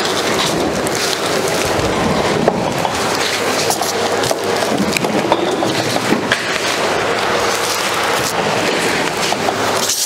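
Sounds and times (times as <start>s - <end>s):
machine rolling across hard floor: 0.0s - 10.0s
plastic film rustling: 0.0s - 10.0s.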